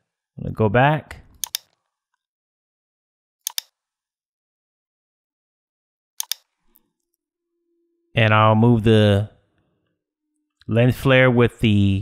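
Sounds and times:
computer mouse clicks: 0:01.3 - 0:01.8, 0:03.4 - 0:03.8, 0:06.2 - 0:06.8.

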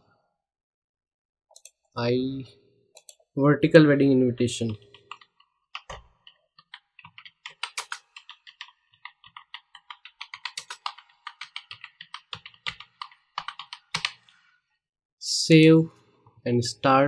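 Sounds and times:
computer keyboard typing: 0:04.6 - 0:14.3.

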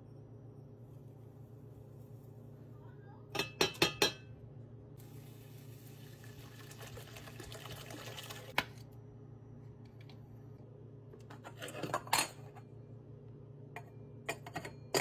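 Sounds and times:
water pouring into a pot: 0:05.0 - 0:08.6.

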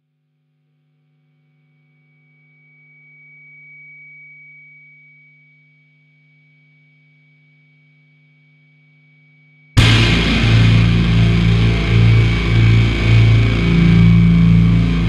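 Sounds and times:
low hum: 0:09.8 - 0:15.0
thin high whine: 0:09.8 - 0:15.0.

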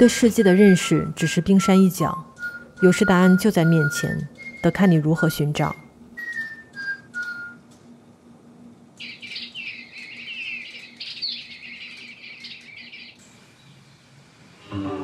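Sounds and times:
electronic toy birds chirping: 0:00.5 - 0:07.6, 0:09.0 - 0:13.2
toy bird whistled note: 0:02.3 - 0:05.4, 0:06.2 - 0:07.6.

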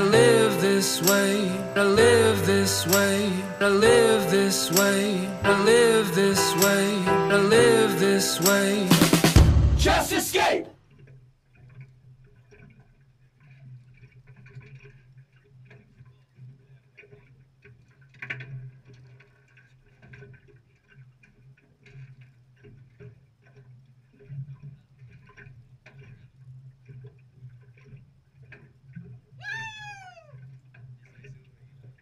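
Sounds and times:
low steady hum: 0:00.0 - 0:08.3
loud knock: 0:08.9 - 0:10.1.

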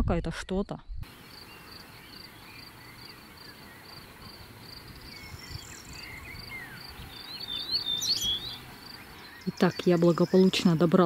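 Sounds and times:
cricket chirping: 0:01.1 - 0:09.4
bird whistles: 0:05.1 - 0:08.6.

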